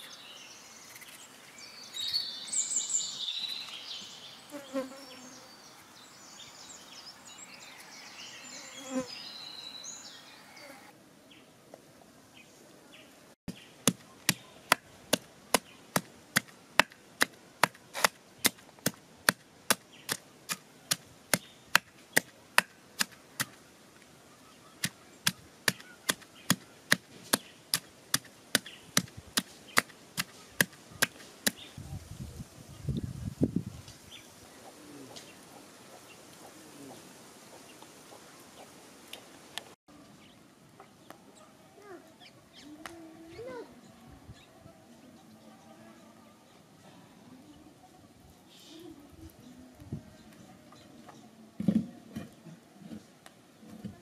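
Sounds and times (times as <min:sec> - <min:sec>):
knife chopping: 0:13.5 - 0:23.6.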